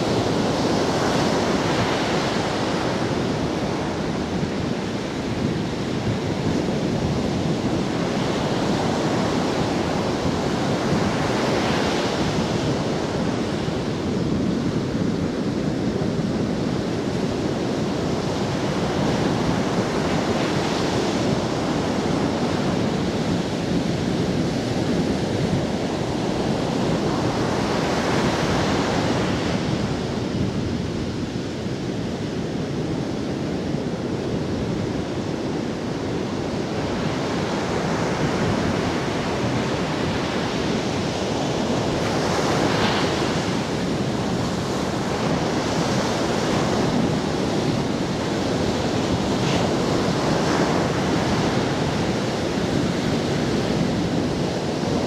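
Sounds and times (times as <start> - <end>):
ocean waves breaking on beach: 0.0 - 55.0.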